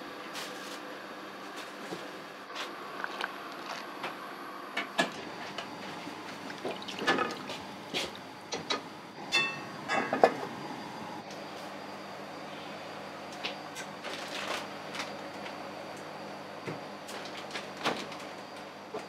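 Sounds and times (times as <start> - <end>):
steady low hum: 0.0 - 19.0
utensils and cookware clattering: 6.8 - 10.4.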